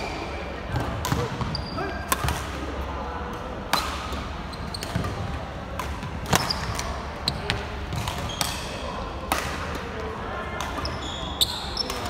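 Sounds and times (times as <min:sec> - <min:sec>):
shoe squeaks on wooden court: 0:01.4 - 0:02.0, 0:04.5 - 0:05.1, 0:06.3 - 0:07.5, 0:08.2 - 0:08.6, 0:10.8 - 0:12.0
racket hitting shuttlecock: 0:02.1 - 0:02.6, 0:05.8 - 0:09.8.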